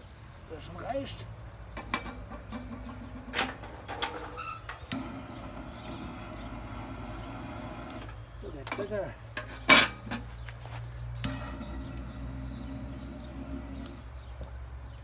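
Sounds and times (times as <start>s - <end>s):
gas torch hissing: 4.8s - 8.2s, 11.2s - 14.1s
sharp metallic clank: 8.7s - 10.3s.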